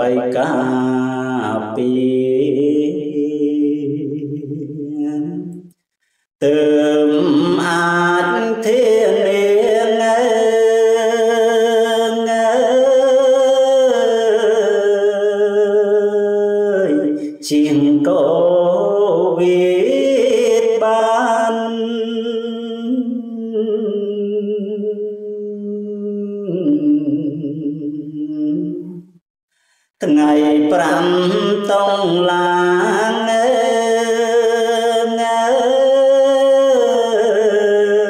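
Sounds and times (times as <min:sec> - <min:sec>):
man chanting verse: 0:00.0 - 0:03.6, 0:30.0 - 0:38.0.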